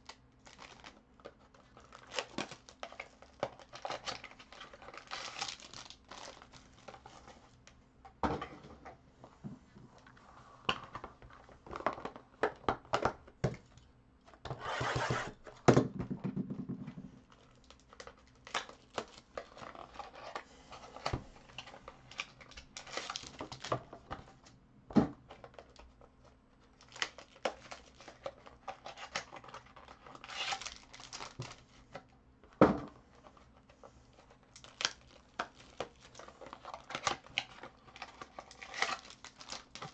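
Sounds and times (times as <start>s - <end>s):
foil wrappers crinkling and tearing: 0.0s - 7.4s, 17.3s - 23.8s, 26.7s - 31.8s, 34.1s - 39.9s
cardboard boxes knocking on table: 14.8s - 17.1s.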